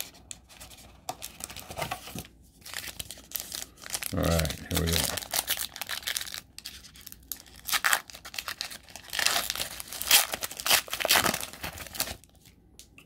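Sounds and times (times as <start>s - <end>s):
foil wrapper tearing and crinkling: 2.6s - 12.3s.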